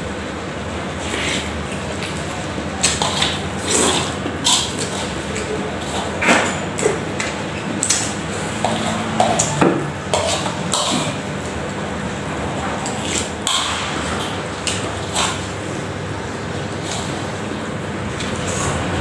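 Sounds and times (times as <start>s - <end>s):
fork scraping metal wok: 8.5s - 11.2s.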